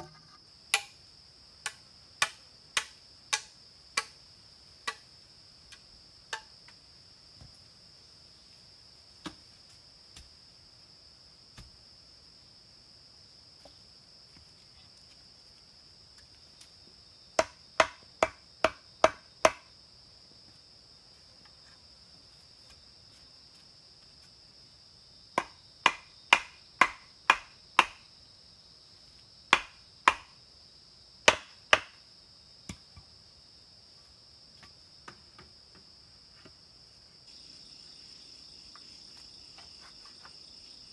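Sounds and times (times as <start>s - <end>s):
machete chopping bamboo: 0.0s - 1.0s, 1.6s - 4.2s, 4.8s - 5.1s, 17.4s - 19.7s, 25.4s - 28.0s, 29.5s - 30.3s, 31.2s - 32.0s
high insect drone: 0.0s - 40.9s.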